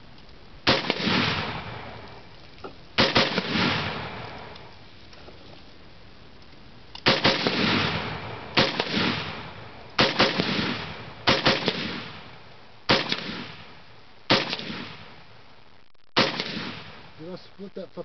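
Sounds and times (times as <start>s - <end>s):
rifle shots with echo: 0.6s - 2.2s, 3.0s - 4.6s, 7.0s - 15.2s, 16.2s - 17.2s.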